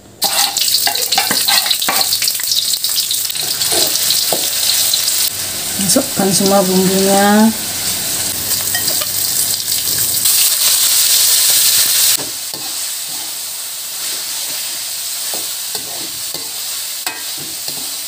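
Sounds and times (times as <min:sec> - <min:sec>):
oil sizzling in a wok: 0:00.0 - 0:18.0
metal spatula stirring: 0:00.2 - 0:02.2, 0:12.5 - 0:13.4, 0:14.0 - 0:18.0.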